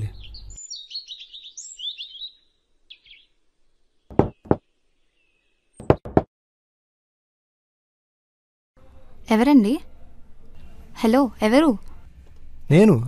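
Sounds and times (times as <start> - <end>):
birds chirping: 0.0 - 6.2
knocking on wooden door: 4.1 - 4.6, 5.8 - 6.3.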